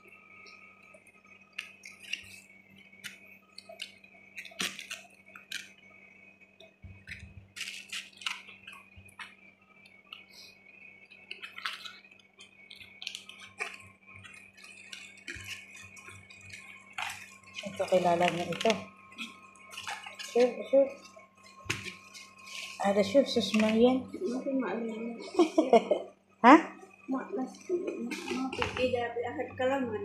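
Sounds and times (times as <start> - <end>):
cabbage leaves crackling and rustling: 12.7 - 21.0.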